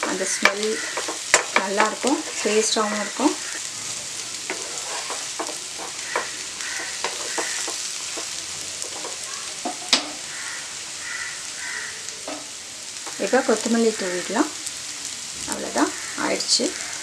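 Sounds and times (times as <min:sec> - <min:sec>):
spatula knocking and scraping pan: 0:00.0 - 0:02.8, 0:04.5 - 0:10.2
food sizzling in a frying pan: 0:00.0 - 0:17.0.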